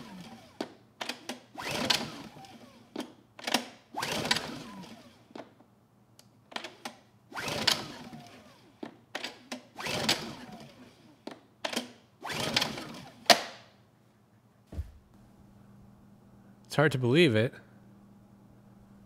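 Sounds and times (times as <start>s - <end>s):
generator recoil starter pulls: 0.0s - 5.2s, 11.6s - 13.4s.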